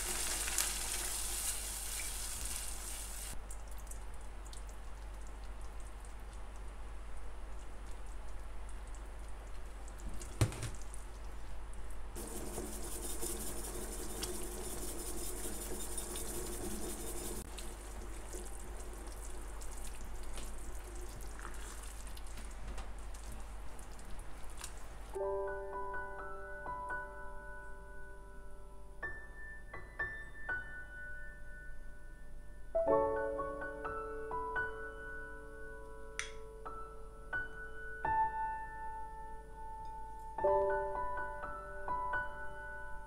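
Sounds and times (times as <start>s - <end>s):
sauce pouring into pan: 0.0s - 3.9s, 17.4s - 22.5s
sauce simmering and stirred: 0.0s - 25.2s.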